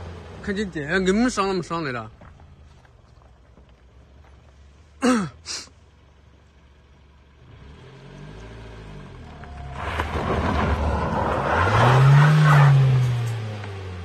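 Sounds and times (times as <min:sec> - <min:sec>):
off-road vehicle engine revving: 0:00.0 - 0:01.7, 0:07.3 - 0:14.0
tyres spinning on dirt: 0:09.2 - 0:13.5.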